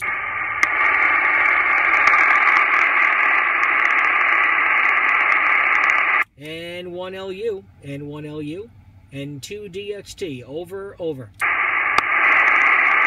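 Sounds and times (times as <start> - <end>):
radio receiver hiss: 0.0 - 6.3, 11.4 - 13.0.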